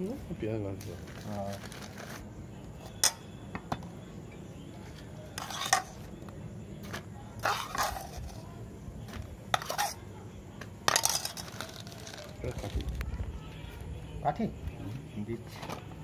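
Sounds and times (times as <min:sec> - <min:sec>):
spoon scraping and clinking on pot: 0:05.3 - 0:06.1, 0:07.4 - 0:08.4, 0:09.5 - 0:10.0, 0:10.8 - 0:12.3.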